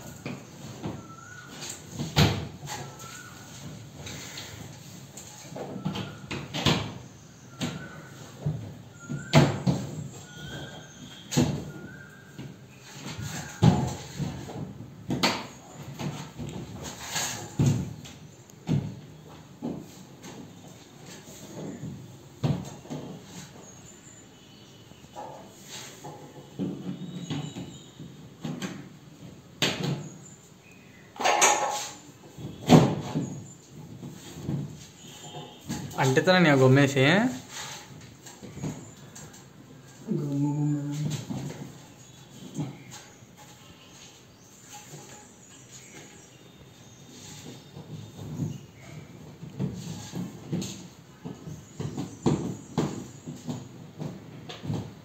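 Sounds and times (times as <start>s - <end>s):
plastic panels knocking and clattering: 0.0s - 23.6s, 31.2s - 36.7s, 47.1s - 55.0s.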